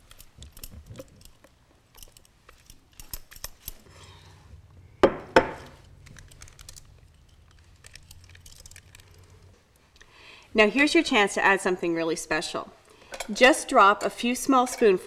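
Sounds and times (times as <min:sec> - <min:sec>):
bowl knocking on countertop: 0:05.0 - 0:05.6.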